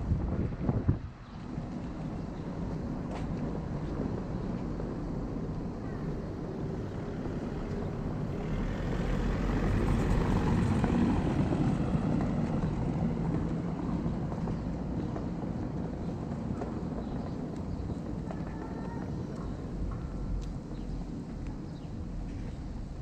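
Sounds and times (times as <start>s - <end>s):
street hum: 0.0s - 23.0s
vehicle passing: 6.3s - 23.0s.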